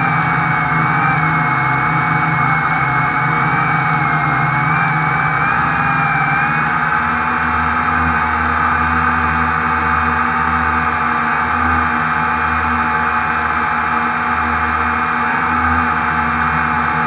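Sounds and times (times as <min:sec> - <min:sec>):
quadcopter motors droning: 0:00.0 - 0:17.0.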